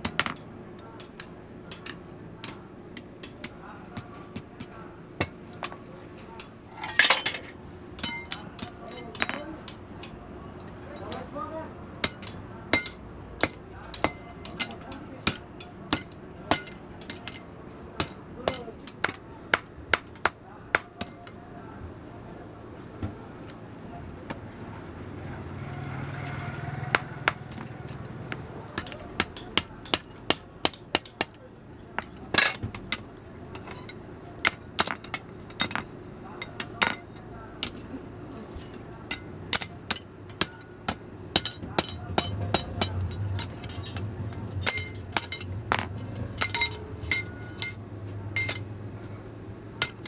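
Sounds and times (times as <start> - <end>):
hammer striking iron on anvil: 0.0 - 5.8, 7.0 - 9.8, 12.0 - 21.4, 26.8 - 37.8, 39.1 - 48.8, 49.8 - 50.0.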